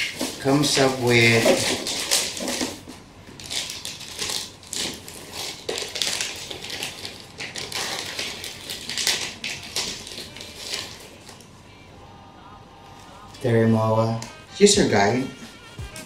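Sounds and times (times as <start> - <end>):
plastic packet crinkling: 0.0 - 11.5.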